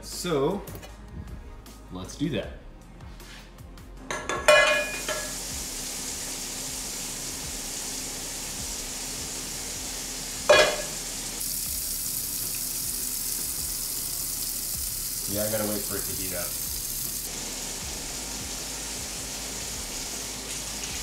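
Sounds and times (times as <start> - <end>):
dish clinking: 4.1 - 5.4, 10.5 - 11.0
faucet running: 4.8 - 21.0.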